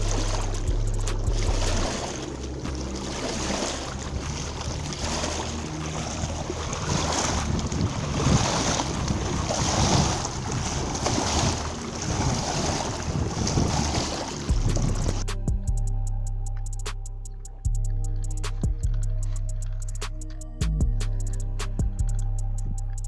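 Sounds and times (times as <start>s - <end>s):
waves lapping on rocky bank: 0.0s - 15.3s
wind on microphone: 0.0s - 15.9s
low hum: 0.0s - 23.0s.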